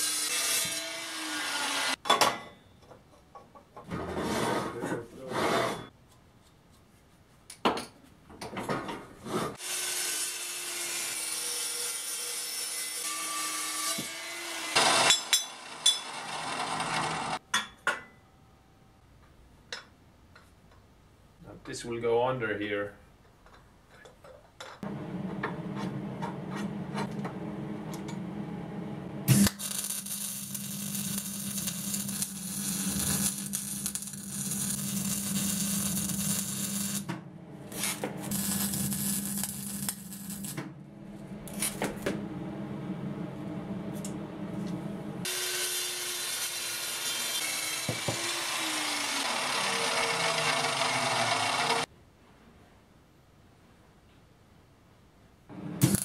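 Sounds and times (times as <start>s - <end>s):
welding arc crackling and hissing: 29.3s - 37.1s, 37.7s - 40.6s.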